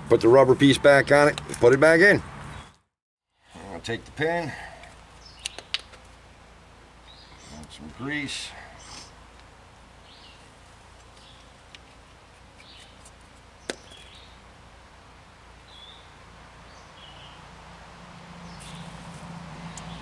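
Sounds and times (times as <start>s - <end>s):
small clicks of brake parts: 4.8s - 6.1s.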